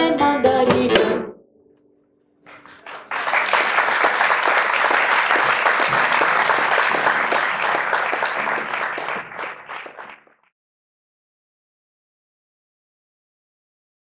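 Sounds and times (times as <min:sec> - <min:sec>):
audience clapping: 0:02.5 - 0:10.5.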